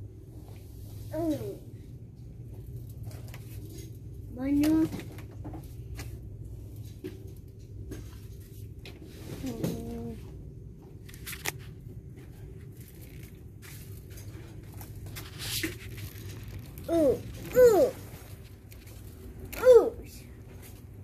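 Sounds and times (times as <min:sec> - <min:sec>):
low steady hum: 0:00.0 - 0:21.0
packaging rustling: 0:12.4 - 0:19.5.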